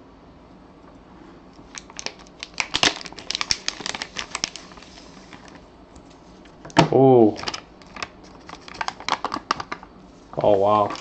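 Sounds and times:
wrapper crinkling and tearing: 0:01.7 - 0:05.6, 0:07.3 - 0:11.0.

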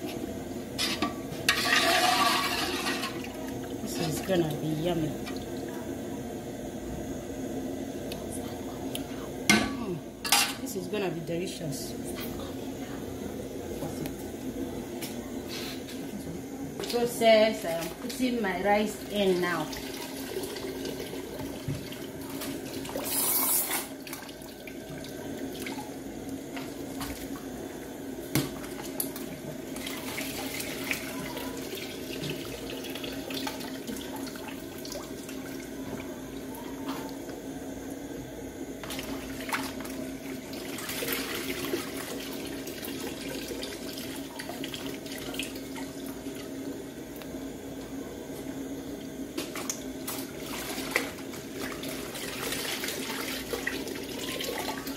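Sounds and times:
steady low hum: 0:00.0 - 0:54.9
water sloshing and splashing: 0:23.9 - 0:27.5, 0:38.8 - 0:46.8, 0:49.0 - 0:54.9.

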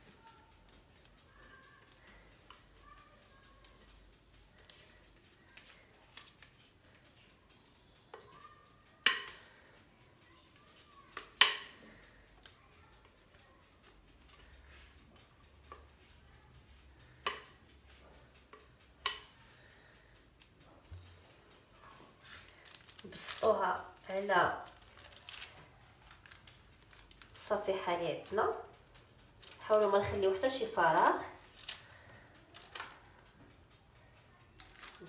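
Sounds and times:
spatula tapping bowl rim: 0:09.0 - 0:09.6.

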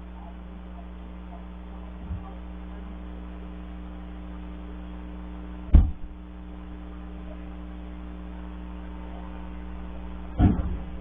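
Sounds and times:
electrical hum: 0:00.0 - 0:11.0
heavy thump: 0:05.7 - 0:06.1, 0:10.4 - 0:11.0.

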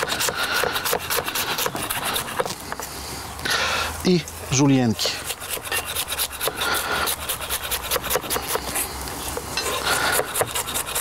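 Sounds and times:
knife chopping on wooden board: 0:00.0 - 0:02.5, 0:07.6 - 0:08.7, 0:10.1 - 0:11.0.

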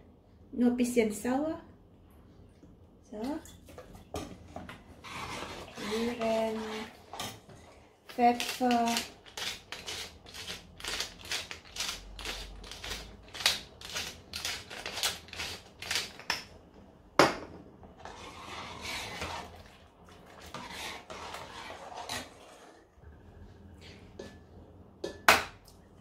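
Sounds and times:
ladle stirring in metal pot: 0:04.1 - 0:07.8, 0:18.0 - 0:22.8
pepper mill grinding: 0:08.1 - 0:16.3.

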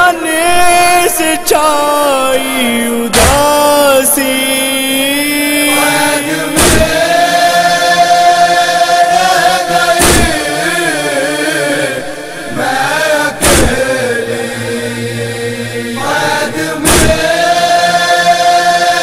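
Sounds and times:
man singing lament: 0:00.0 - 0:19.0
deep thump: 0:06.6 - 0:07.0, 0:10.0 - 0:10.4, 0:13.4 - 0:13.9, 0:16.8 - 0:17.2.

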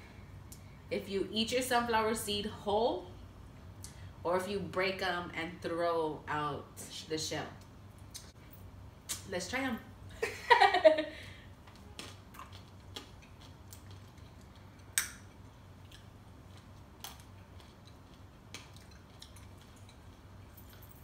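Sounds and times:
chewing: 0:11.7 - 0:20.8.

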